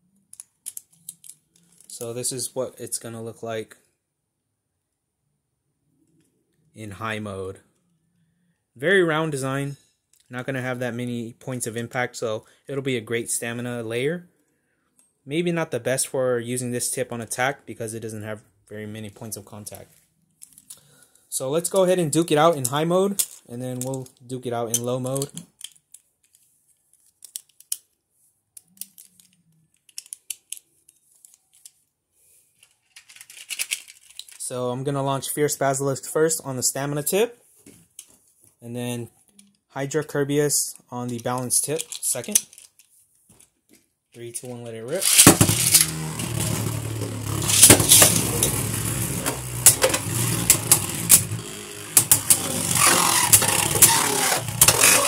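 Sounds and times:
clicks of spinning-top parts: 28.6 - 31.8
spinning tops clashing clicks: 45.0 - 46.6, 47.4 - 51.4, 52.0 - 55.0
spinning tops whirring scrape: 45.0 - 55.0.

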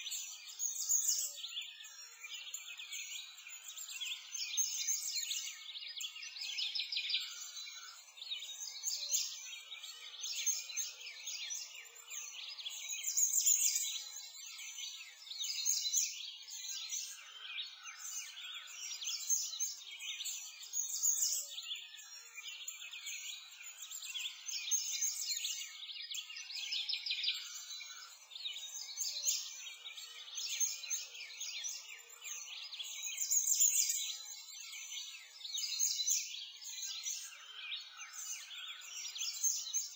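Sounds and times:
songbirds chirping and trilling: 0.0 - 39.9.

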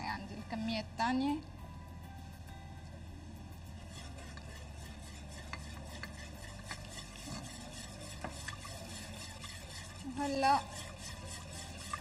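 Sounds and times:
utensil clicking against pot: 4.2 - 7.6.

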